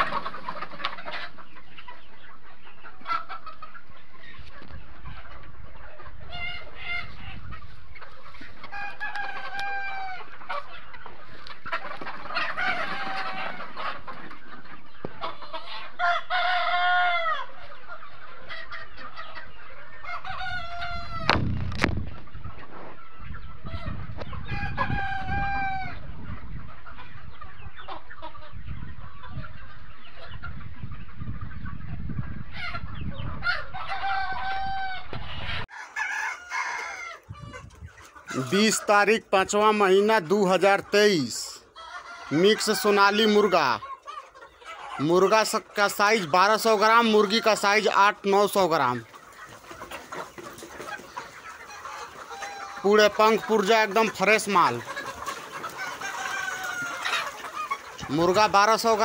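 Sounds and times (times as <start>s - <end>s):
roosters crowing: 0.0s - 1.3s, 8.3s - 14.5s, 15.6s - 19.2s, 19.8s - 21.4s, 24.4s - 26.1s, 33.4s - 59.0s
chickens clucking: 0.0s - 59.0s
sharp knock: 21.3s - 22.0s.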